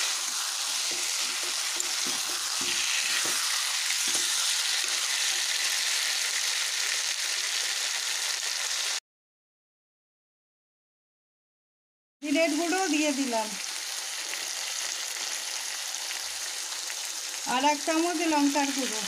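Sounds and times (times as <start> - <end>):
metal spatula scraping a pan: 0.0 - 6.2
chicken frying in hot oil: 0.0 - 9.0, 12.3 - 19.0.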